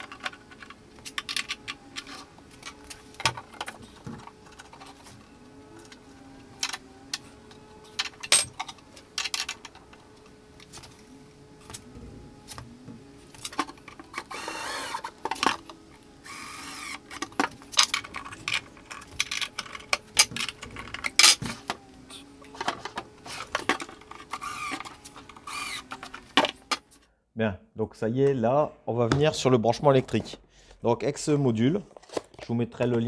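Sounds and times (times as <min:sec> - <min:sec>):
drawer sliding on metal slides: 0:00.0 - 0:26.6
cordless drill driving screws: 0:12.4 - 0:26.6.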